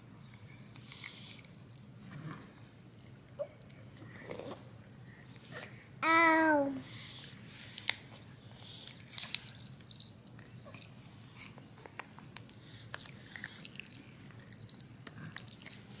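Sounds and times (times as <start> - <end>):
popping candy crackling: 8.8 - 16.0.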